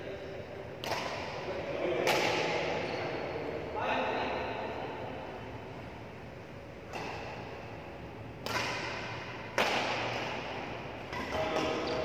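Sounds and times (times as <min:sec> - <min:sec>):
racquets striking shuttlecock: 0:00.8 - 0:01.4, 0:02.0 - 0:02.7, 0:06.8 - 0:12.0.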